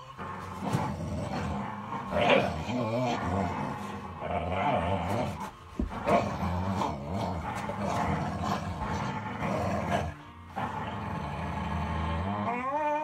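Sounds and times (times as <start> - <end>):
dogs growling: 0.0 - 13.0.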